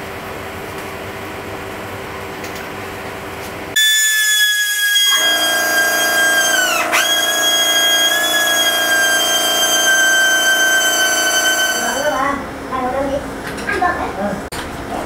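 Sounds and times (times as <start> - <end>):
rotary tool whining: 3.8 - 12.3.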